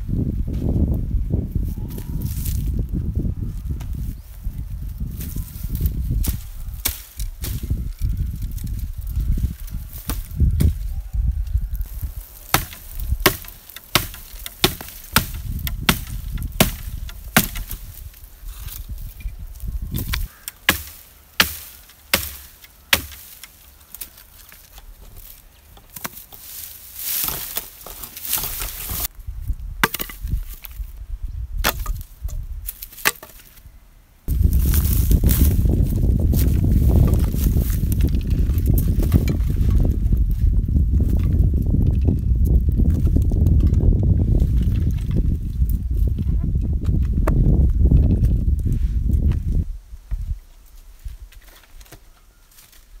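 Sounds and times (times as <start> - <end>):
axe chopping wood: 6.8 - 7.6, 12.5 - 17.8, 20.0 - 23.6, 29.8 - 30.2, 31.6 - 32.0, 32.8 - 33.4.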